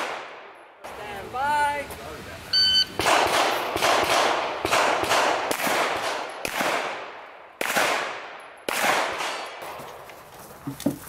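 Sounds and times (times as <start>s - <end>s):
pistol shots with echo: 0.0s - 0.8s, 3.0s - 9.8s.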